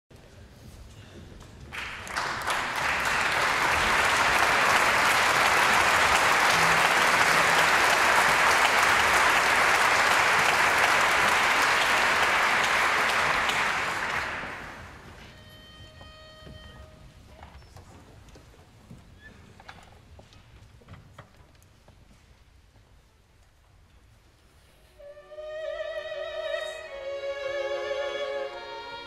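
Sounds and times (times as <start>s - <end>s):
audience applauding: 1.7s - 15.2s.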